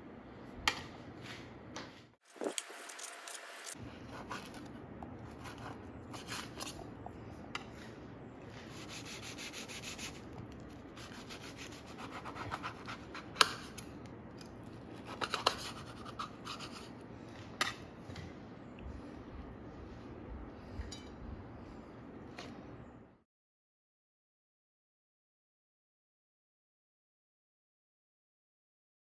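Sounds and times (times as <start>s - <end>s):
knife sawing through toasted bread: 8.7s - 10.2s, 11.0s - 13.3s.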